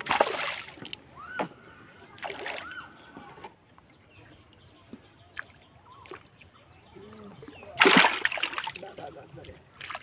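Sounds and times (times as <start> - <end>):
faint bird chirps: 1.2 - 7.8.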